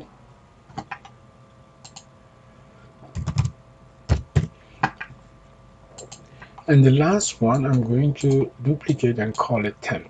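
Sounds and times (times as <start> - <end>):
faint steady hum: 0.0 - 10.0
mouse clicks: 1.8 - 2.1
keyboard keystrokes: 3.2 - 3.5.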